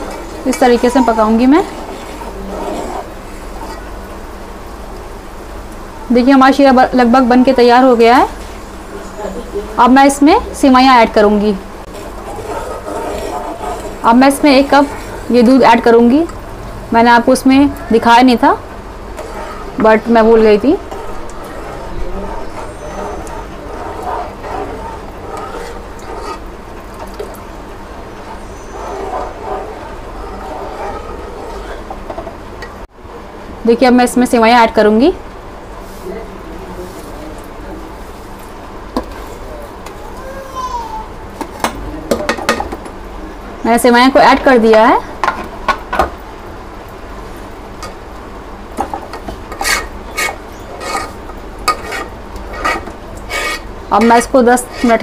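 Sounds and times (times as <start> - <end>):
steel spoon scraping a pot: 0.0 - 3.9, 11.8 - 16.3, 17.9 - 32.3, 49.0 - 55.0
syrup bubbling in a metal pot: 0.0 - 4.1, 11.8 - 16.3, 18.5 - 32.2
steady low hum: 0.0 - 39.0.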